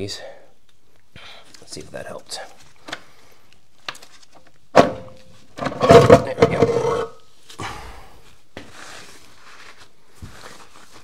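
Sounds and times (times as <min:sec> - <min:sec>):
metal part scraping and squealing: 0:05.9 - 0:07.2.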